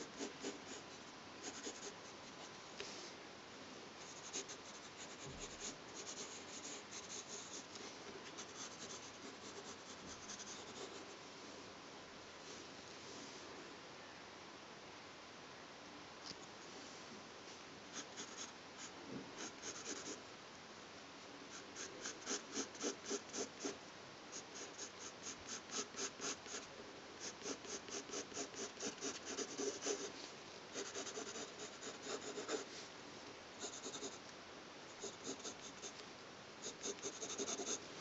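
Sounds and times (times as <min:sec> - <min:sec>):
pencil scratching on paper: 0:00.0 - 0:00.8, 0:01.4 - 0:02.5, 0:04.0 - 0:07.7, 0:08.3 - 0:11.2, 0:18.0 - 0:20.2, 0:21.6 - 0:23.8, 0:24.4 - 0:30.1, 0:30.8 - 0:32.7, 0:33.6 - 0:34.2, 0:35.0 - 0:35.9, 0:36.6 - 0:37.8.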